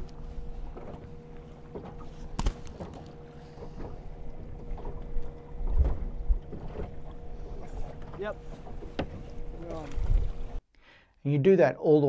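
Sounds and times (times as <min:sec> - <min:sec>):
waves lapping against boat hull: 0:00.0 - 0:10.6
faint steady hum: 0:00.0 - 0:11.1
wind on microphone: 0:09.7 - 0:10.6.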